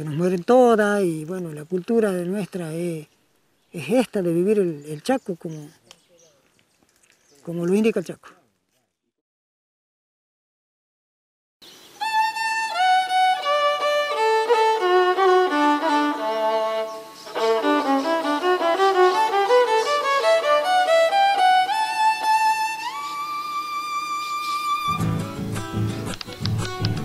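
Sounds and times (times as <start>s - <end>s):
solo violin melody: 11.9s - 25.5s.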